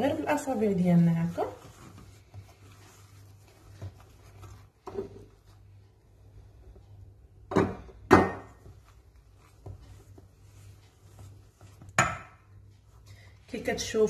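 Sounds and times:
low steady hum: 0:00.0 - 0:14.0
soft clicks of hand mixing: 0:00.0 - 0:14.0
kitchen bowls knocking: 0:07.5 - 0:08.6.

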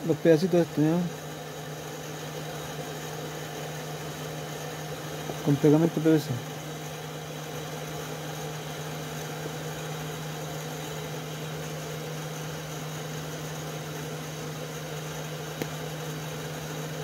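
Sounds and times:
constant hiss: 0:00.0 - 0:17.0
low machine hum: 0:00.0 - 0:17.0
small click: 0:15.6 - 0:15.8.

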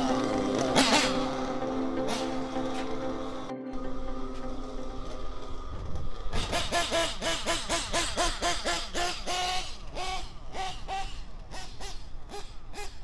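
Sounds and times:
bouncy melody of nasal notes: 0:00.0 - 0:05.6.

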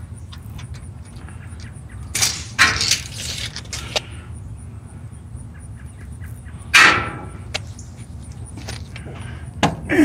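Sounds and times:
tape measure retracting: 0:02.1 - 0:04.1.

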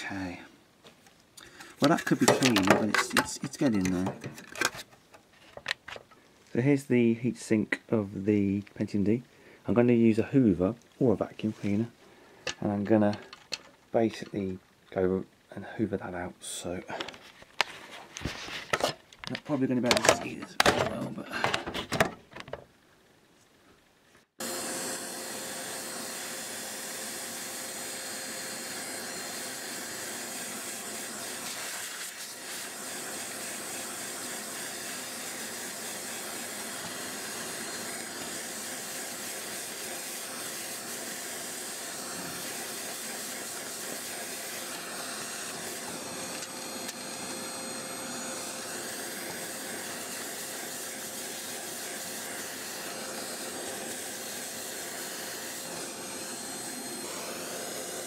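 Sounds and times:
vacuum cleaner running: 0:24.4 - 0:58.0.

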